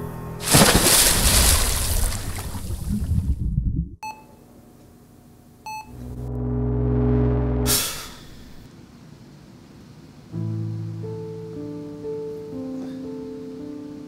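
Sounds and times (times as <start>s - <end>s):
rushing underwater noise: 0.4s - 3.6s
patient monitor beeps: 4.0s - 4.4s, 5.7s - 6.0s
low droning rumble: 5.9s - 8.7s.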